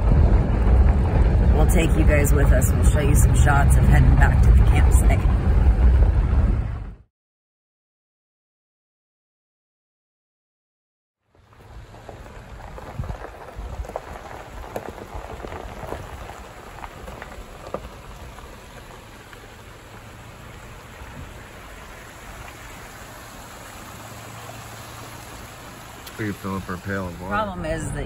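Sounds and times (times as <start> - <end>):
stones and water crackling: 0.0 - 4.2, 11.3 - 27.4
tyres rolling over gravel: 0.0 - 6.7, 11.3 - 28.0
low engine and road hum: 0.0 - 7.1, 11.2 - 28.0.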